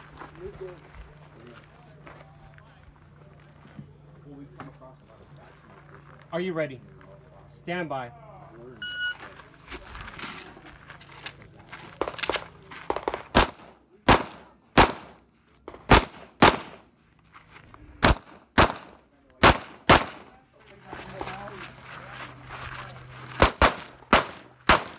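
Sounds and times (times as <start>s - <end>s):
handgun shots: 12.0s - 16.8s, 18.0s - 20.3s, 23.4s - 24.9s.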